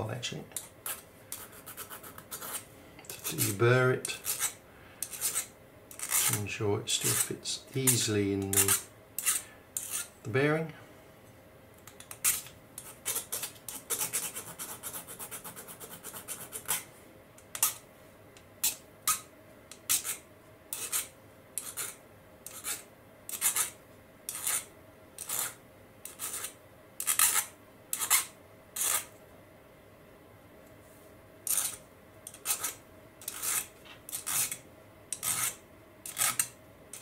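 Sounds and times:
hand file rasping on metal: 0:04.1 - 0:06.4, 0:07.9 - 0:10.1, 0:19.9 - 0:23.7, 0:24.3 - 0:29.1, 0:31.5 - 0:34.6, 0:35.2 - 0:36.5.

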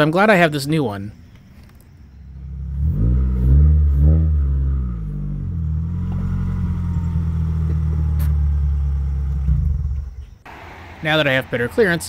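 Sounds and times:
car engine revving: 0:02.4 - 0:12.0.

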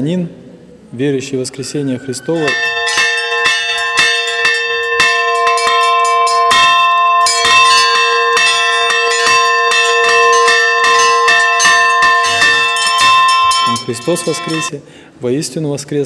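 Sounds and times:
small church bells ringing: 0:02.0 - 0:14.7.

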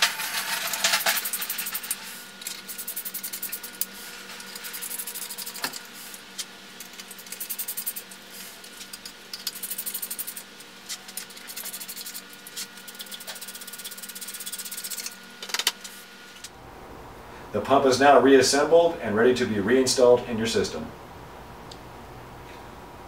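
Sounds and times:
ratchet wrench clicking: 0:00.0 - 0:03.9, 0:04.6 - 0:05.8, 0:06.8 - 0:08.1, 0:08.8 - 0:10.5, 0:12.8 - 0:15.1.

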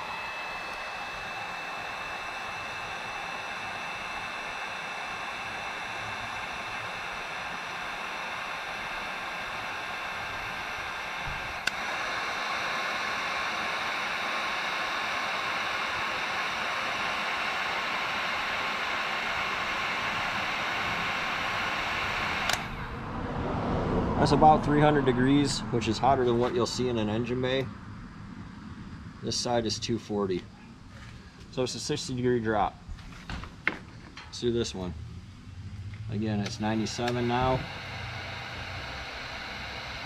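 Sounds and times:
heat gun blowing air: 0:00.0 - 0:22.9, 0:36.2 - 0:40.0
heat gun switch click: 0:22.4 - 0:22.7, 0:36.4 - 0:37.5.

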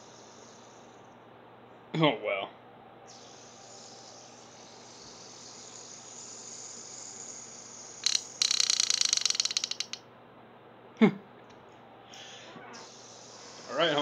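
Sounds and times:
fidget spinner whirring: 0:03.1 - 0:10.0
rattle of clicks: 0:08.0 - 0:10.0.

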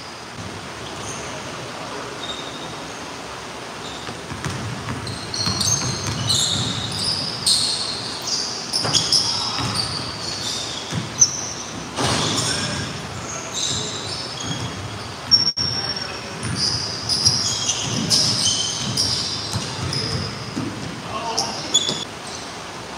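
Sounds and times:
sneaker squeaks: 0:00.0 - 0:03.2, 0:03.8 - 0:22.6
basketball dribbling on hardwood: 0:10.9 - 0:11.9.

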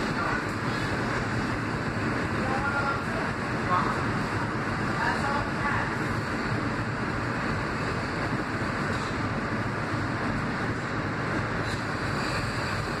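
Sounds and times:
subway train rumble: 0:00.0 - 0:13.0.

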